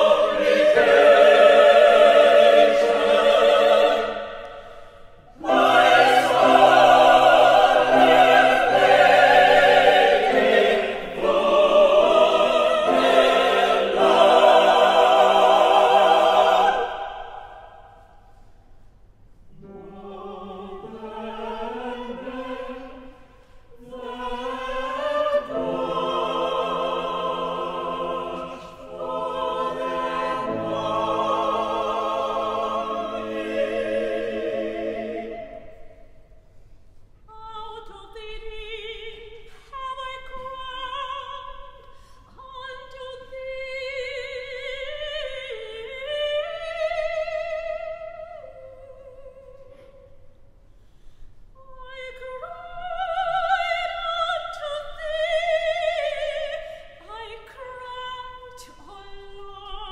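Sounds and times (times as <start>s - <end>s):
choir singing slow chords: 0.0s - 18.5s, 19.5s - 36.8s.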